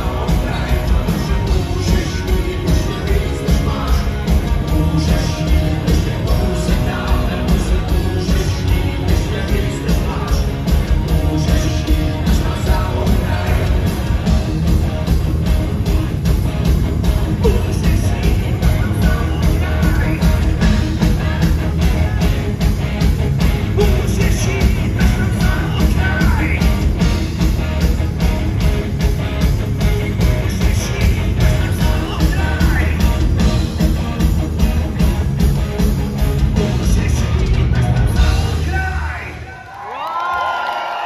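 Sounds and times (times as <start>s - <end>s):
person singing: 0.0s - 14.5s, 17.4s - 22.7s, 23.7s - 27.0s, 29.8s - 34.2s
drumbeat: 0.0s - 39.3s
bass guitar: 0.0s - 39.5s
electric guitars: 0.0s - 41.0s.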